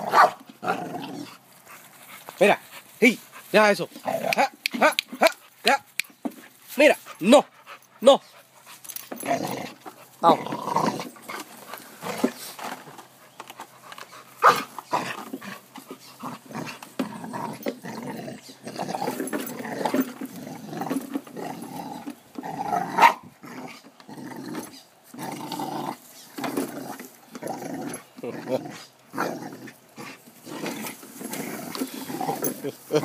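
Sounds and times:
dog growling: 0:00.0 - 0:01.4, 0:09.1 - 0:12.6, 0:14.4 - 0:33.0.

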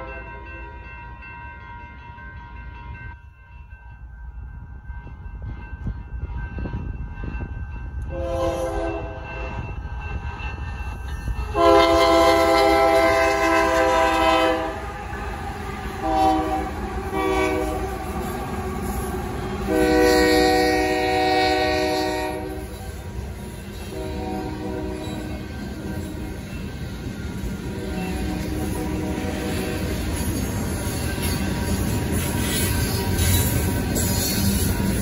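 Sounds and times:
crossing bells ringing: 0:00.0 - 0:35.0
train rumbling: 0:00.0 - 0:35.0
locomotive air horn blasts: 0:08.1 - 0:09.6, 0:11.4 - 0:15.2, 0:15.8 - 0:18.3, 0:19.6 - 0:22.9, 0:23.7 - 0:26.3, 0:27.7 - 0:29.8.

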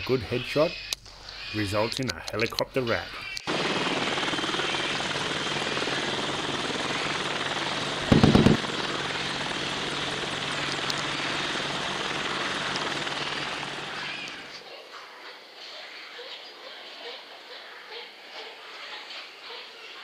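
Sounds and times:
helicopter rotor and engine: 0:03.4 - 0:14.6
loud low thump: 0:08.1 - 0:08.6.

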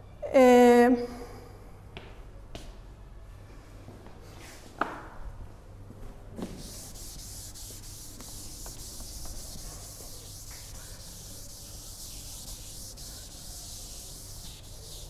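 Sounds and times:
eraser wiping chalkboard: 0:06.4 - 0:15.0.

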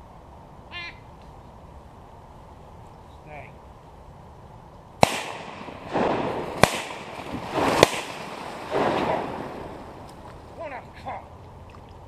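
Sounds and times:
shotgun shots: 0:05.0 - 0:09.9
rolling echo: 0:05.0 - 0:10.6.

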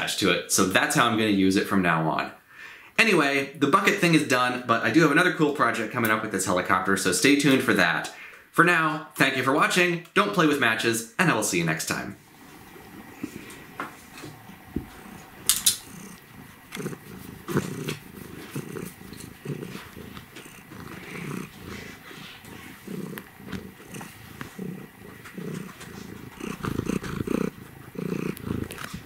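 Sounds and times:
cat purring: 0:11.6 - 0:29.0.

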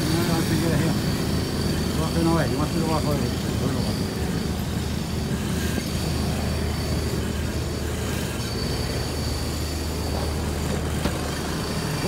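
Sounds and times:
high-pitched whine: 0:00.0 - 0:12.0
low mechanical rumble: 0:00.0 - 0:12.0.

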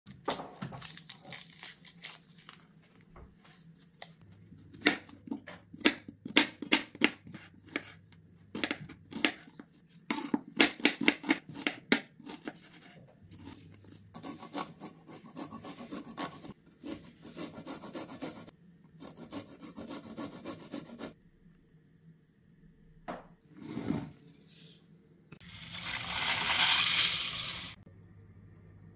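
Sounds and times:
onion skin crackling: 0:00.6 - 0:02.7
knife chopping on wooden board: 0:04.8 - 0:09.4, 0:10.1 - 0:12.9.

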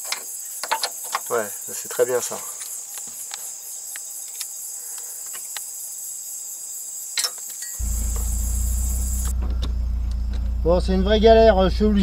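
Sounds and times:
crickets chirping: 0:00.0 - 0:12.0
low engine hum: 0:07.8 - 0:12.0.

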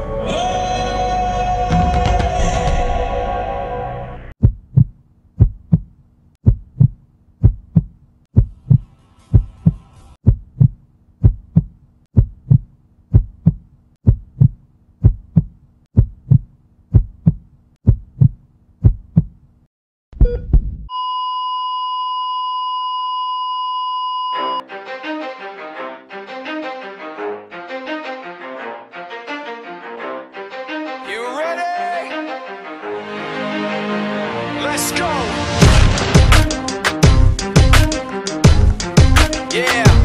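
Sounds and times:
heartbeat thumps: 0:04.4 - 0:19.4, 0:20.2 - 0:20.9
steady electronic beep tone: 0:20.2 - 0:24.6.

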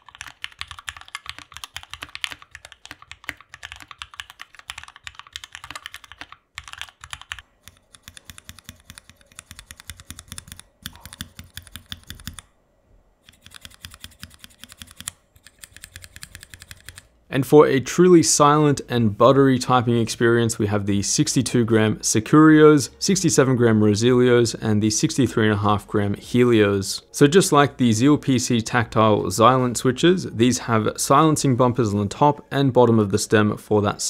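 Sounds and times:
mechanical keyboard typing: 0:00.0 - 0:12.5, 0:13.3 - 0:17.1.

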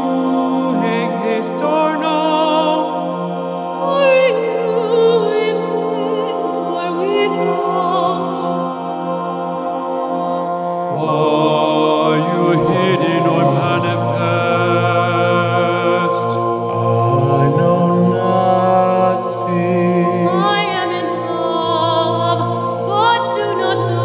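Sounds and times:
mixed choir singing: 0:00.0 - 0:24.0.

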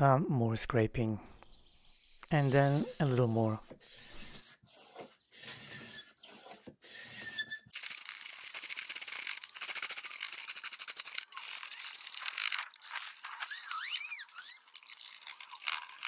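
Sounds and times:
scraper scraping paint off wood: 0:02.2 - 0:14.6.

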